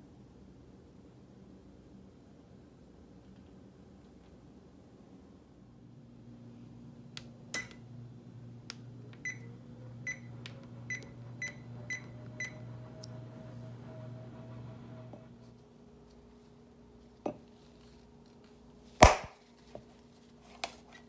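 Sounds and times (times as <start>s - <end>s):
low steady hum: 0.0s - 21.0s
oven control panel beeping: 7.5s - 7.8s, 9.2s - 14.3s.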